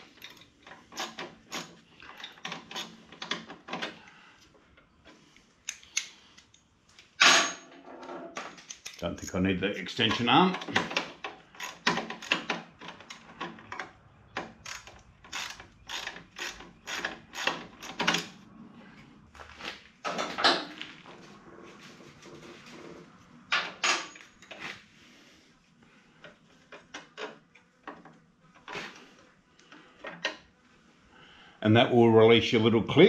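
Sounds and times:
hand ratchet clicking: 0:08.6 - 0:09.4, 0:11.6 - 0:13.2, 0:14.6 - 0:18.3.

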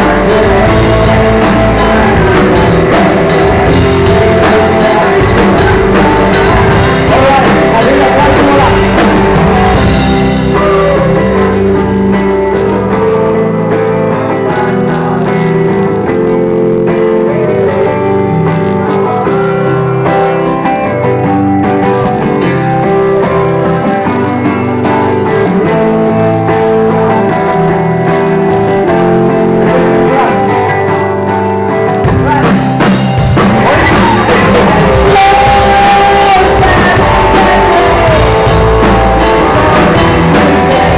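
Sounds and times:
electric guitar: 0:00.0 - 0:40.9
live rock band: 0:00.0 - 0:40.9.

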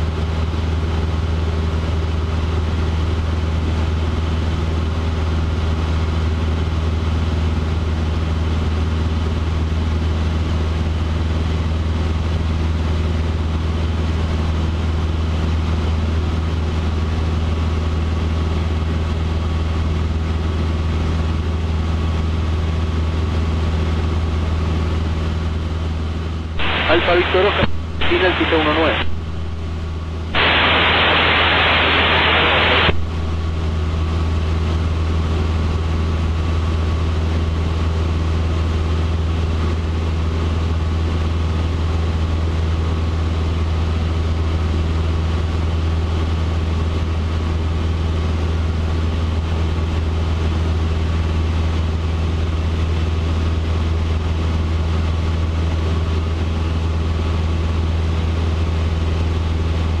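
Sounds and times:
airplane engine and propeller droning: 0:00.0 - 1:00.0
loud radio hiss: 0:26.6 - 0:34.0.

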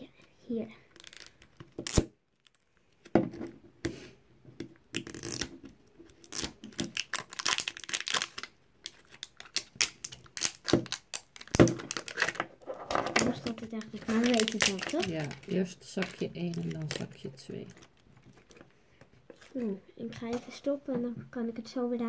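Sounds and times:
plastic wrapping crinkling: 0:06.1 - 0:18.7.

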